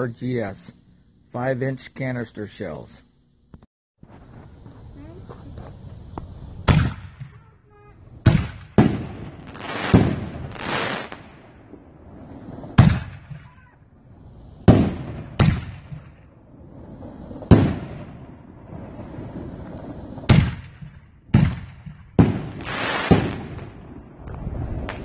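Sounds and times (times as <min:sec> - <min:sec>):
firework shells booming with echo: 0:04.0 - 0:14.0, 0:14.6 - 0:25.0.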